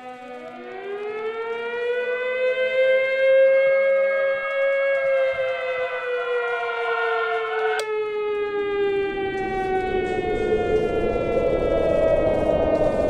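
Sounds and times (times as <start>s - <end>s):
air-raid siren wailing: 0.0s - 13.0s
low rushing rumble: 8.7s - 13.0s.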